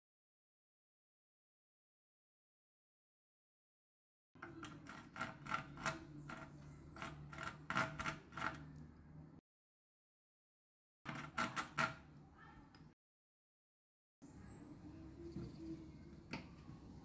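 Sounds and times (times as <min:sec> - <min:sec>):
screwdriver scraping and clicking on metal: 0:04.4 - 0:08.8.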